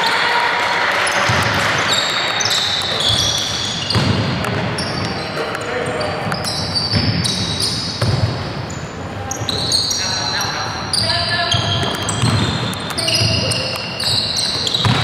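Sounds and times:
sneakers squeaking on court: 1.0s - 15.0s
basketball bouncing: 1.2s - 5.2s, 6.3s - 8.6s, 11.5s - 15.0s.

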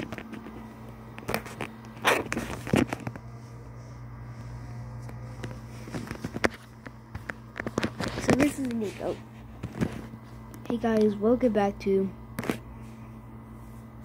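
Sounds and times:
steady low hum: 0.0s - 14.0s
phone handling rustles: 5.1s - 8.9s.

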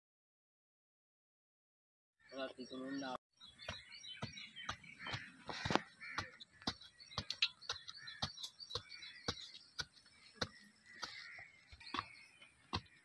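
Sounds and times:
hoe chopping dry soil: 3.6s - 13.0s.

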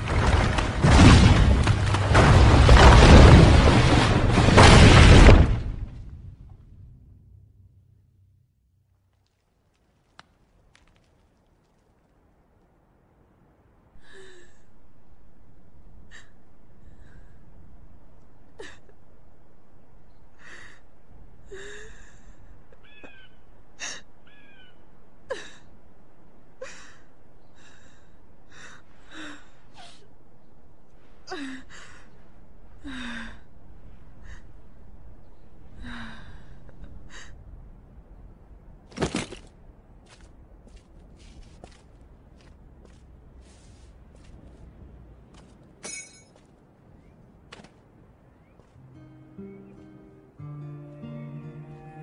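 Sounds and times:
steady wind: 9.2s - 50.4s
woman sobbing: 31.3s - 31.7s.

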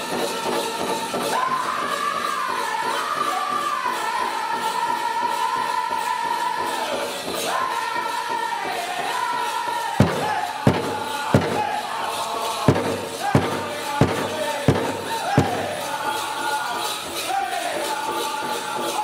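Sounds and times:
high voices singing: 0.0s - 19.0s
big drum strikes: 10.0s - 16.0s.

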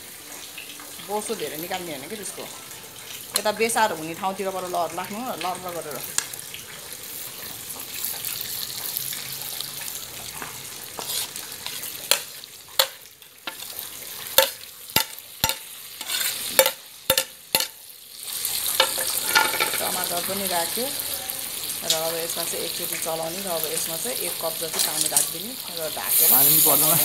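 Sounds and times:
meat sizzling in hot fat: 0.0s - 27.0s.

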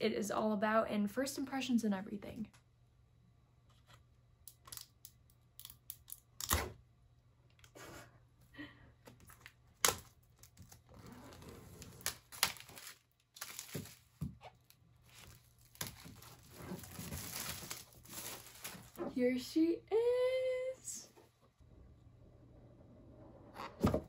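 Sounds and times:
plastic film crinkling: 9.2s - 19.0s
plastic wrap ripping: 9.3s - 19.0s.

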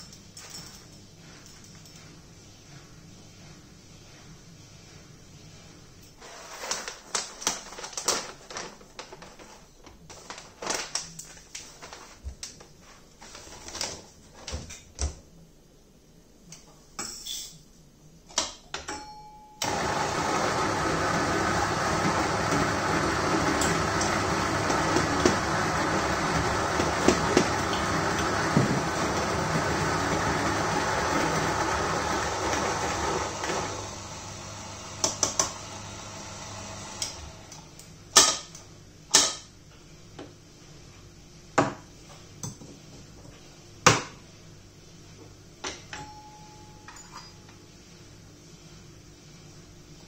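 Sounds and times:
electric coffee grinder whirring: 19.6s - 37.6s.

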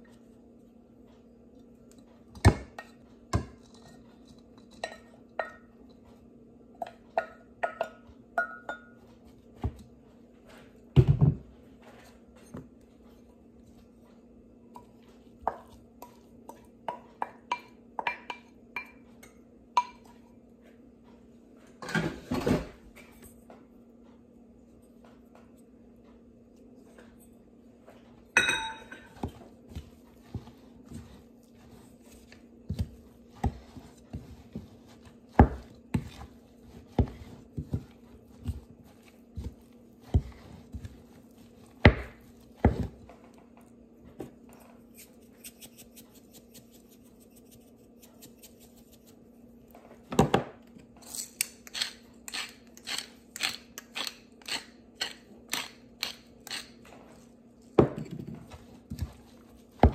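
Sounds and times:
wooden spoon scraping a bowl: 29.0s - 43.3s
spice grinder grinding: 51.1s - 56.8s.

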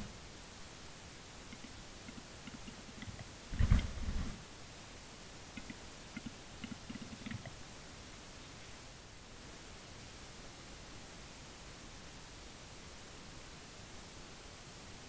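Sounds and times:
faint ticks: 1.5s - 3.9s, 5.6s - 7.6s
bird wings beating: 1.6s - 4.4s.

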